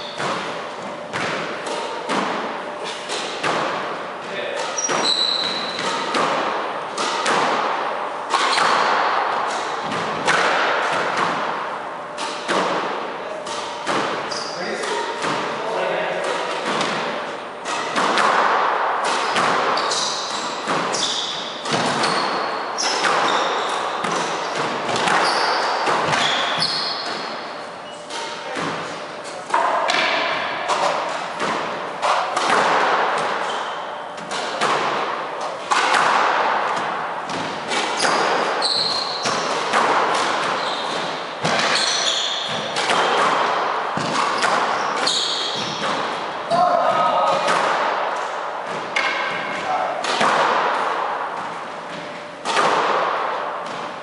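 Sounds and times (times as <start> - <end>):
squash ball thuds: 0.0 - 15.6, 16.3 - 54.0
shoes squeaking on wooden floor: 4.8 - 5.9, 22.0 - 28.1, 38.0 - 39.5, 40.6 - 41.0, 44.0 - 45.8.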